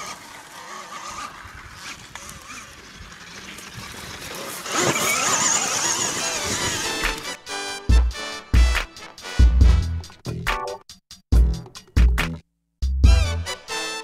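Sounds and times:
tyre noise: 0.0 - 7.3
electric motor whine: 0.0 - 7.4.

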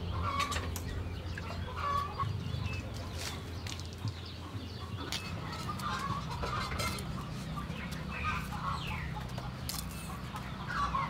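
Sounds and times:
chickens clucking: 0.0 - 11.0
steady low hum: 0.0 - 11.0.

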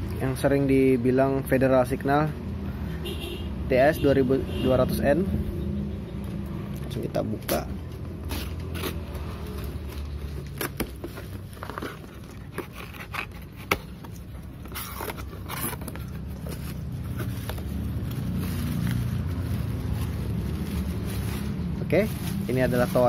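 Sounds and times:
cardboard tearing: 7.5 - 23.0
knife cutting cardboard box: 8.2 - 17.8
rustling: 8.3 - 23.0.

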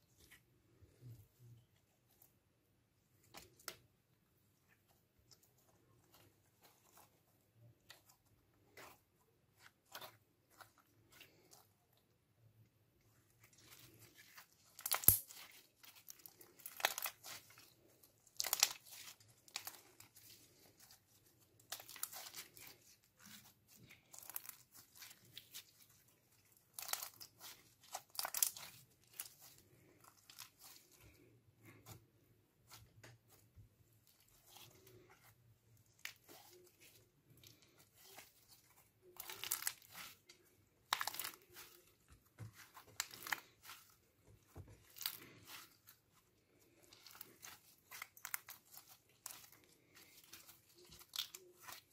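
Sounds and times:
slime squelching and snapping: 13.1 - 51.9.

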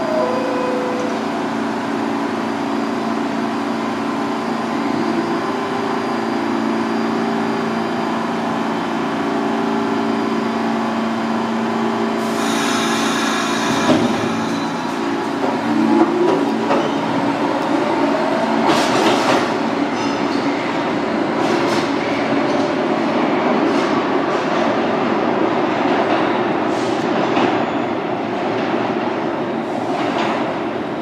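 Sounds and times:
loud air hiss: 12.2 - 15.2.

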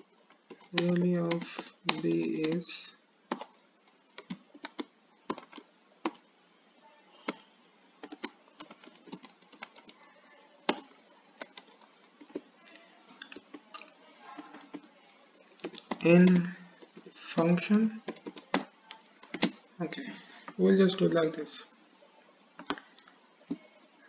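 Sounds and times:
computer keyboard typing: 0.0 - 6.2, 8.0 - 12.5, 13.2 - 14.9, 15.5 - 17.1, 17.7 - 19.6.

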